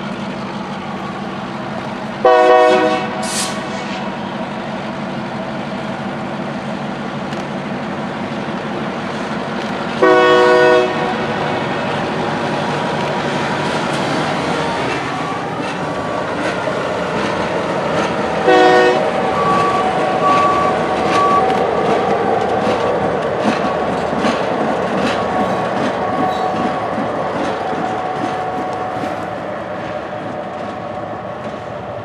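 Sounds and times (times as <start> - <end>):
train rumble: 0.0 - 32.0
train wheels clicking on rail joints: 0.0 - 32.0
train horn blast: 2.2 - 4.1, 10.0 - 11.4, 18.4 - 21.4.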